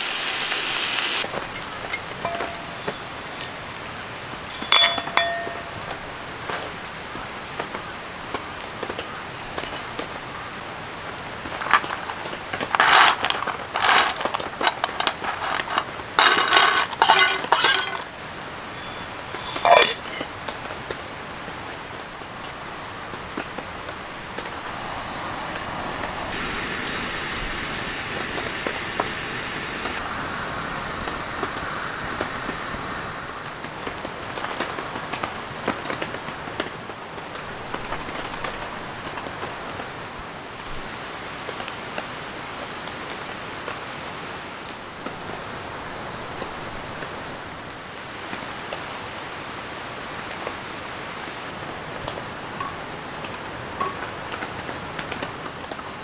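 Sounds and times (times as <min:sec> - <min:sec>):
steady hiss: 0:00.0 - 0:36.4
pot and lid clattering: 0:01.3 - 0:05.8, 0:12.8 - 0:20.3.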